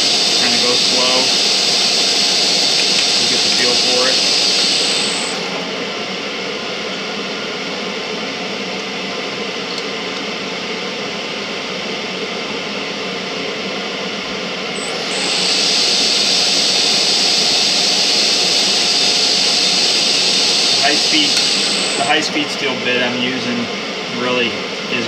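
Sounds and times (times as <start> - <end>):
metal lathe running: 0.0 - 8.1, 14.7 - 25.0.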